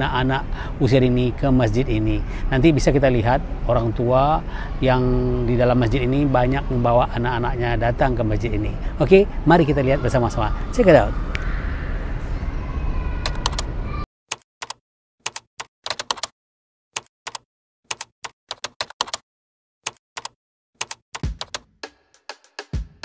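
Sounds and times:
keyboard key clicks: 0:14.3 - 0:16.3, 0:17.3 - 0:19.2, 0:19.9 - 0:21.6.

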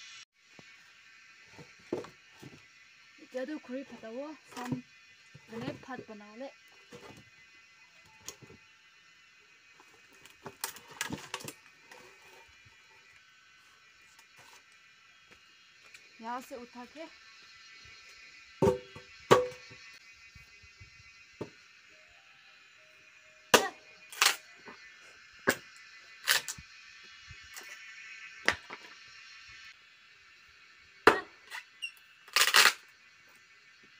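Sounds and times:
faint steady hiss: 0:00.0 - 0:33.9
axe chopping a log: 0:18.6 - 0:19.6, 0:23.6 - 0:23.8, 0:31.1 - 0:31.3.

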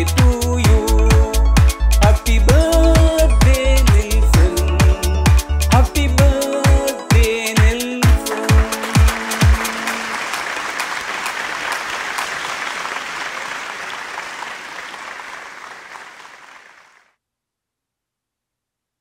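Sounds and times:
crowd applause: 0:08.2 - 0:17.0.

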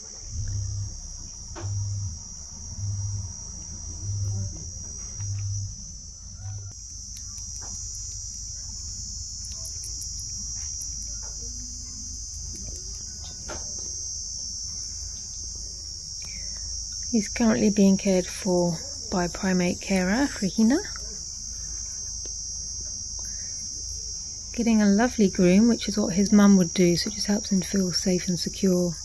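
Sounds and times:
high-pitched insect chorus: 0:00.0 - 0:29.0
soft low thuds: 0:00.2 - 0:06.7.

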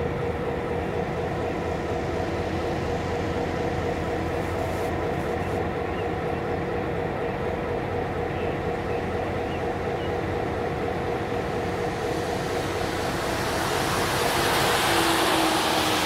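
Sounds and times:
locomotive engine idling: 0:00.0 - 0:16.0
road vehicle tyre noise: 0:10.2 - 0:16.0.

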